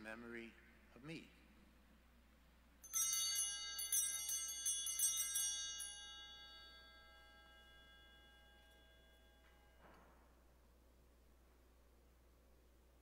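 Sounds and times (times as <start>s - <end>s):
altar bells ringing: 2.8s - 10.4s.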